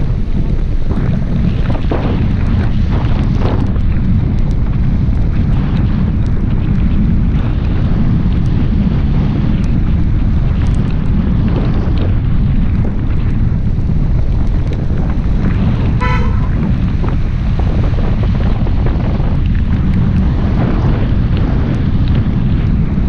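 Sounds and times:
car rumbling on wet road: 0.0s - 23.0s
wind rushing on microphone: 0.0s - 23.0s
car horn toot: 16.0s - 16.8s.

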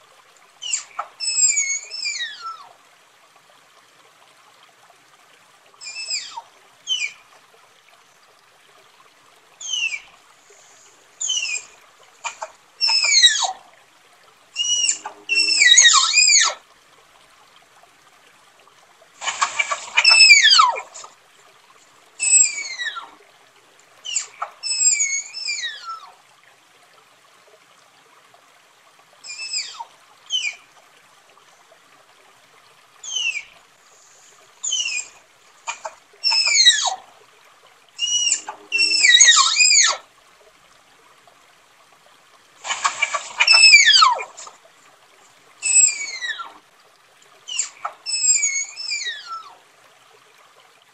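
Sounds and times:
tapir whistling squeals: 0.6s - 2.6s, 5.8s - 7.2s, 9.6s - 10.1s, 11.2s - 11.7s, 12.8s - 13.6s, 14.6s - 16.6s, 19.3s - 21.0s, 22.2s - 23.1s, 24.1s - 26.0s, 29.3s - 30.6s, 33.0s - 33.5s, 34.6s - 37.0s, 38.0s - 40.0s, 42.7s - 44.5s, 45.6s - 46.5s, 47.5s - 49.5s.

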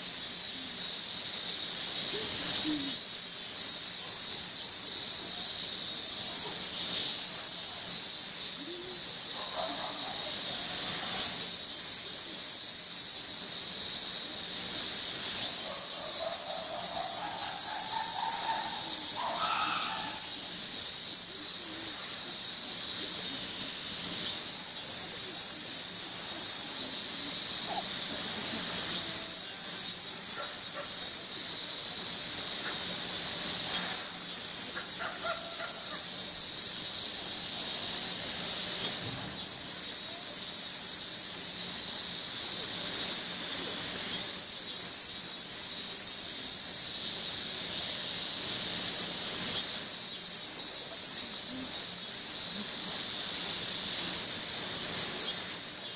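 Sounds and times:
cicadas buzzing: 0.0s - 55.9s.

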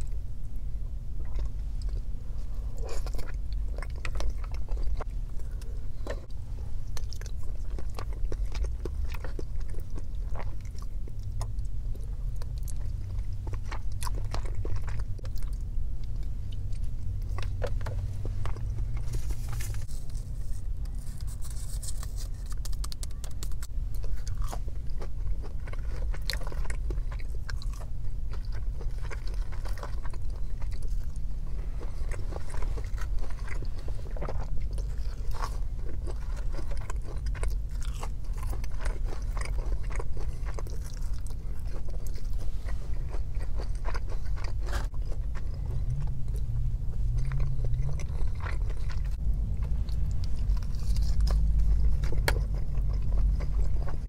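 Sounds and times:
steady low hum: 0.0s - 54.0s
crunchy chewing: 1.1s - 54.0s.

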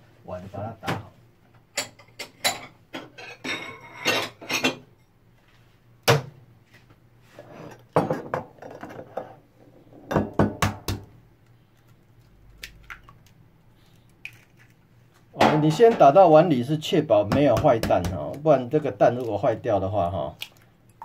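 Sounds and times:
egg cracking into bowl: 14.1s - 14.8s.

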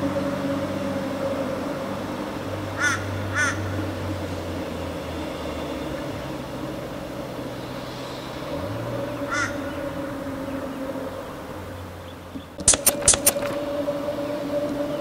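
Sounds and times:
electric train humming: 0.0s - 15.0s
crow cawing: 2.8s - 3.8s, 9.3s - 9.8s
sharp clicks: 12.6s - 13.6s.

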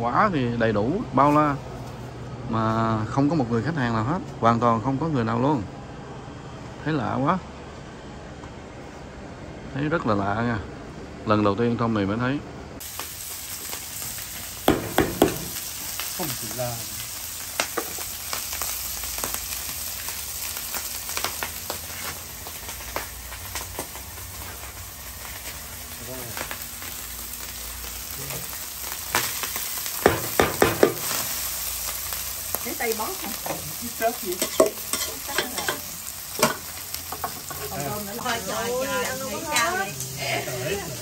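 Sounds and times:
food sizzling on a griddle: 12.8s - 41.0s.

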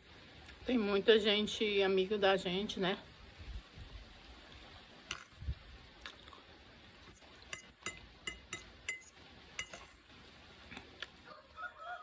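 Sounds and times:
fork clinking on glass plate: 7.5s - 9.9s.

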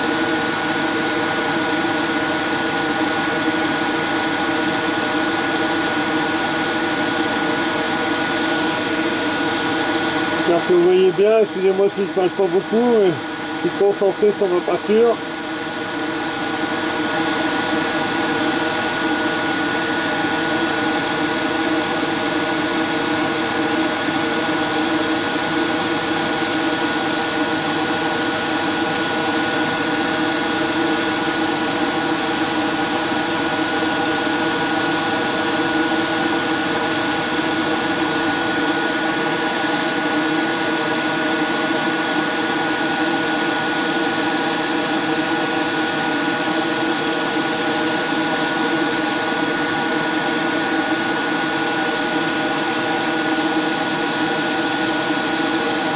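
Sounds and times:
airbrush hissing: 7.4s - 22.8s.

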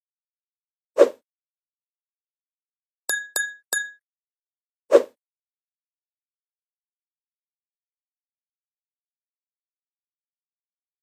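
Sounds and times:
hammer striking metal stake: 3.1s - 4.0s.

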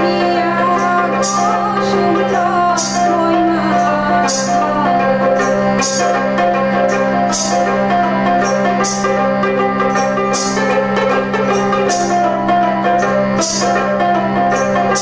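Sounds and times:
woman singing: 0.0s - 8.4s
harmonium drone: 0.0s - 15.0s
jingling percussion stroke: 0.0s - 15.0s
plucked string instrument: 0.0s - 15.0s.

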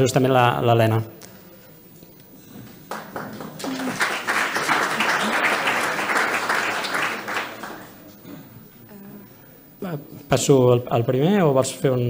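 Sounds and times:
audience applauding: 2.6s - 8.2s.

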